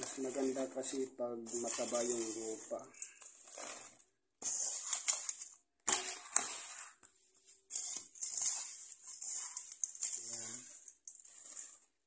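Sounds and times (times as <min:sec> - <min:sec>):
hand crunching soil mix: 0:00.0 - 0:05.4.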